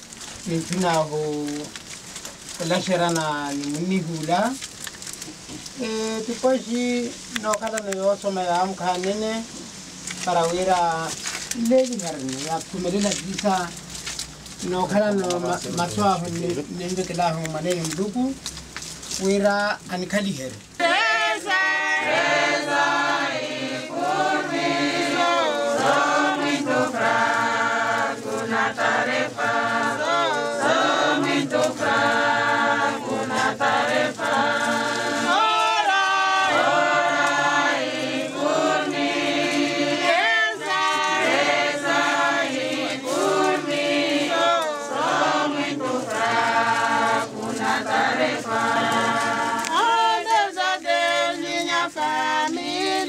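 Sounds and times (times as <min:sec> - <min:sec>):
group singing a funeral song: 0:20.6 - 0:53.0.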